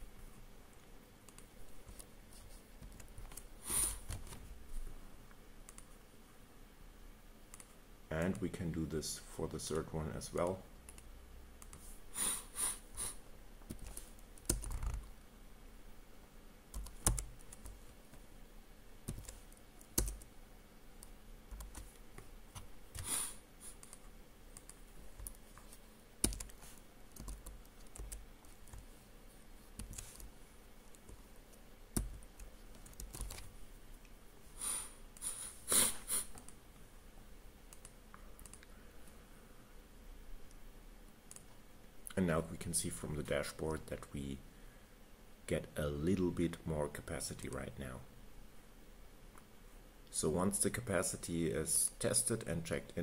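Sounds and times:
computer keyboard keystrokes: 0:13.7 - 0:15.1, 0:16.7 - 0:17.8, 0:19.1 - 0:20.3, 0:21.0 - 0:21.9, 0:26.2 - 0:26.6, 0:27.2 - 0:28.8, 0:29.8 - 0:30.3, 0:32.0 - 0:33.5.

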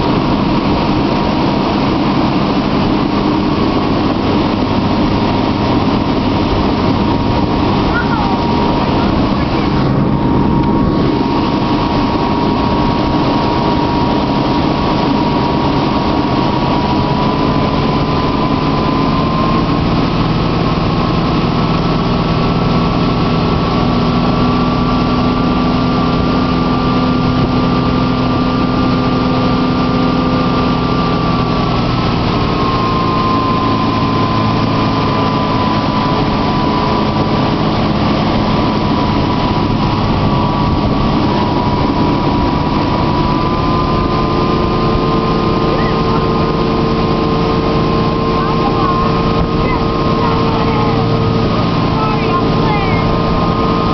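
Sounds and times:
wind rushing: 0:00.0 - 0:19.6
churning water: 0:00.0 - 0:53.9
motorboat engine whine: 0:00.0 - 0:53.9.

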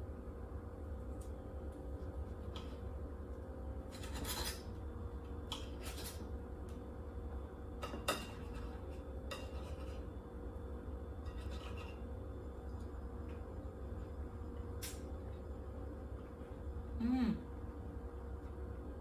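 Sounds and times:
knife and fork scraping a plate: 0:03.8 - 0:04.8, 0:05.5 - 0:06.3, 0:07.8 - 0:10.1, 0:11.2 - 0:12.2.

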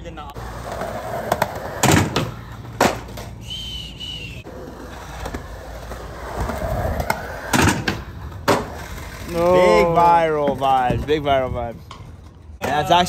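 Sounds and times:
skateboard wheels rolling on concrete: 0:00.0 - 0:13.0
high whistle-like tone: 0:03.4 - 0:04.5.

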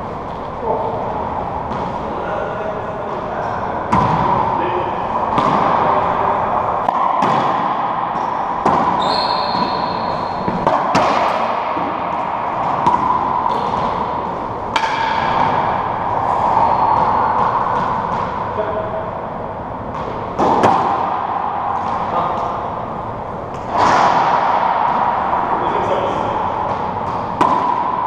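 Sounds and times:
racquetball hits echoing: 0:01.5 - 0:28.0
high squeak: 0:09.0 - 0:10.5.

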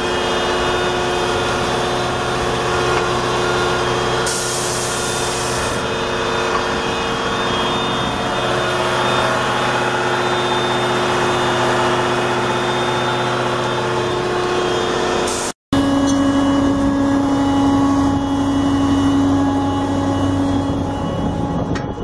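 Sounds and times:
diesel engine idling: 0:00.0 - 0:22.0
hiss: 0:04.3 - 0:05.8.

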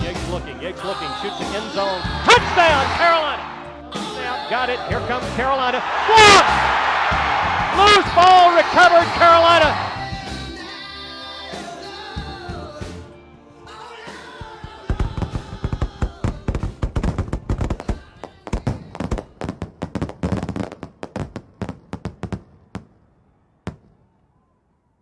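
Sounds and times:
sharp bangs and pops: 0:14.7 - 0:22.9.

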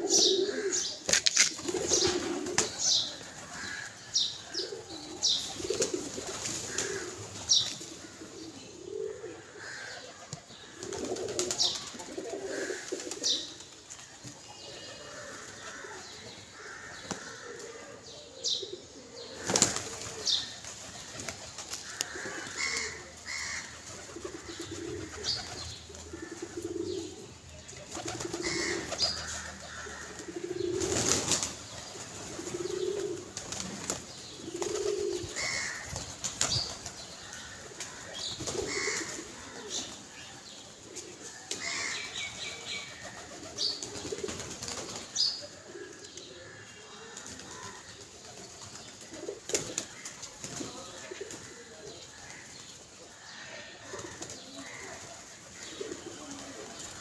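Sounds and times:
pigeons cooing: 0:00.0 - 0:57.0.

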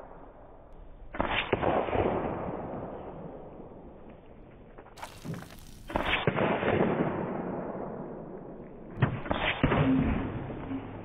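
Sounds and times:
pellets bursting soda cans: 0:05.0 - 0:06.3.

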